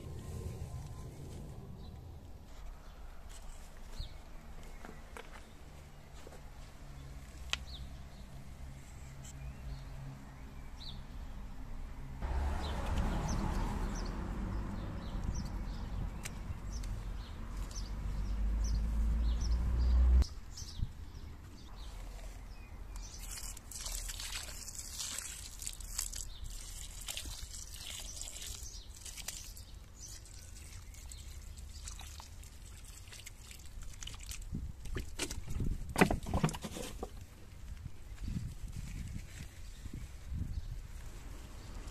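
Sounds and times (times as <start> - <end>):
low rumble: 0.0 - 3.0
water splashing on soil: 23.0 - 36.7.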